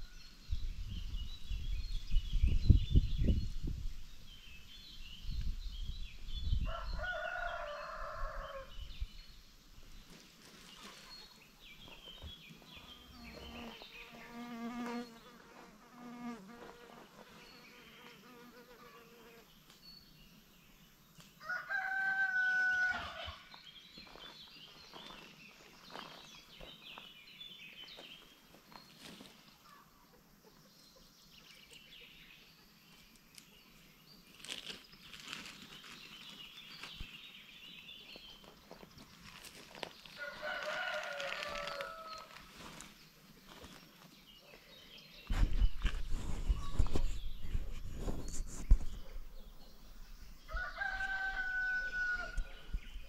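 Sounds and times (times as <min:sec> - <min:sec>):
rooster crowing: 0:06.7 - 0:08.7, 0:21.4 - 0:23.4, 0:40.2 - 0:42.3, 0:50.5 - 0:52.7
chicken calls: 0:39.7 - 0:42.5.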